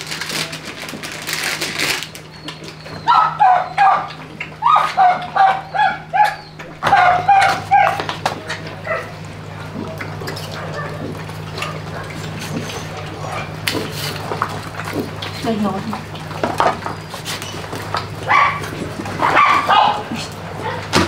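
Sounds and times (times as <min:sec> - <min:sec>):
puppies whining and yipping: 0:02.1 - 0:09.2, 0:10.2 - 0:14.2, 0:16.3 - 0:20.9.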